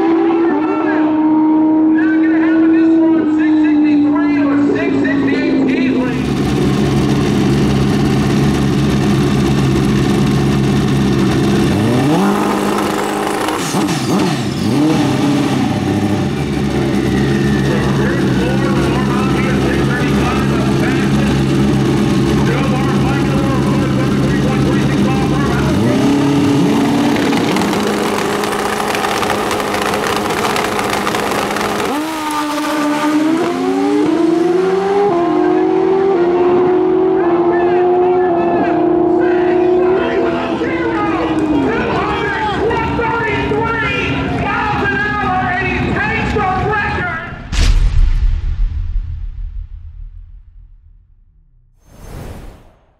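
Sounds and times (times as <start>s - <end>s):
motorcycle engine revving: 0.0s - 41.8s
motorcycle engines idling: 4.2s - 11.7s, 16.2s - 32.2s.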